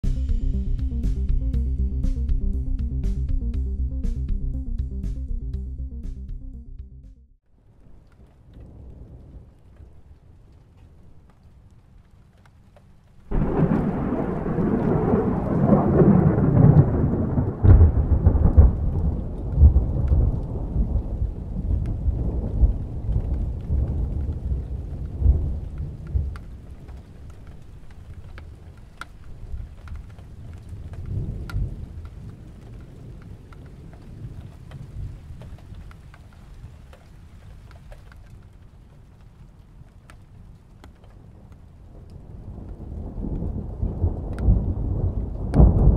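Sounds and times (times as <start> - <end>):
distant thunder rumbling: 13.3 - 38.8, 41.2 - 45.9.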